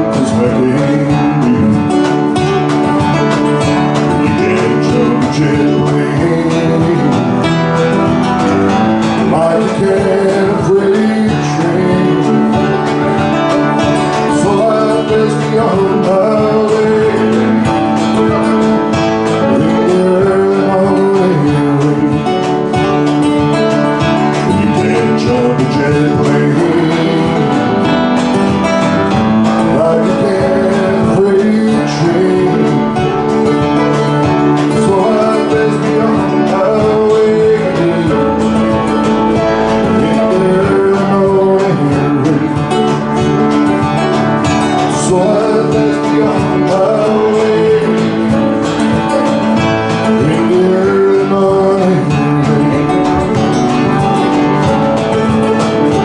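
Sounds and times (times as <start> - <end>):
acoustic guitar: 0.0 - 56.0
man singing folk song: 0.0 - 56.0.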